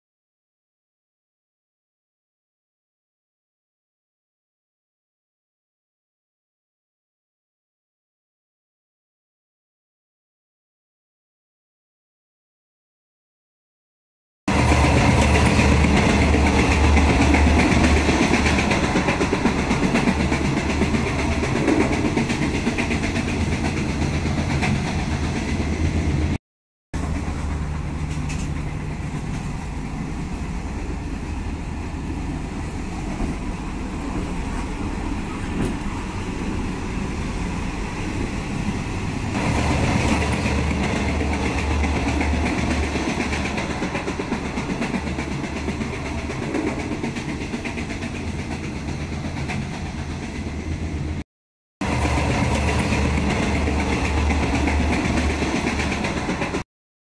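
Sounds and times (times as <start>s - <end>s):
train carriage running noise: 14.5s - 26.4s, 27.0s - 51.2s, 51.8s - 56.6s.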